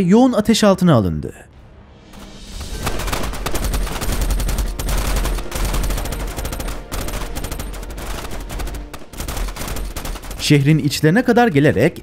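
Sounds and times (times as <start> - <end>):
heavy gunfire: 2.5 - 10.8.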